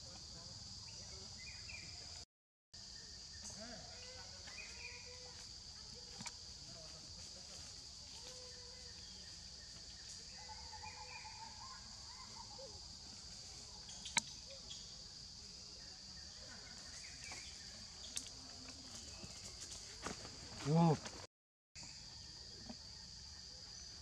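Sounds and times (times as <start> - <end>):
insects droning: 0.0 - 2.2, 2.8 - 24.0.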